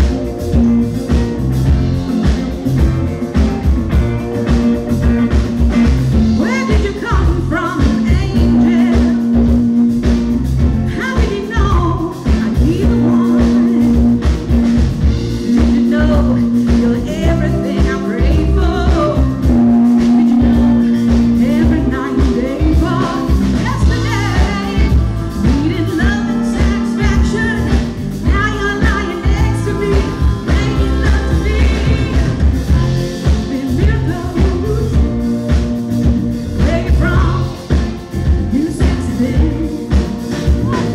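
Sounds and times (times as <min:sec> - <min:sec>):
bass guitar: 0:00.0 - 0:40.9
drums: 0:00.0 - 0:40.9
electric guitar: 0:00.0 - 0:40.9
women singing: 0:06.3 - 0:09.6, 0:10.9 - 0:14.2, 0:15.4 - 0:40.9.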